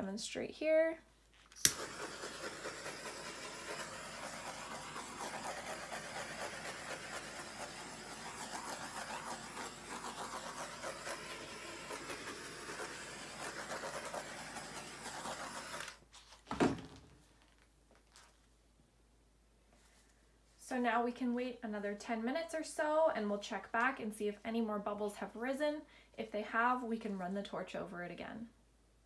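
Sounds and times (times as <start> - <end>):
torch flame hissing: 1.6 - 16.0.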